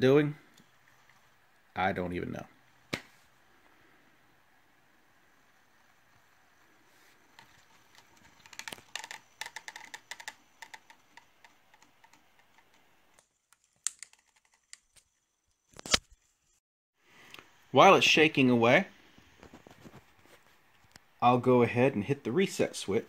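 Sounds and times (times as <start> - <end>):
camera gimbal clicking and rattling: 7.4 - 12.9.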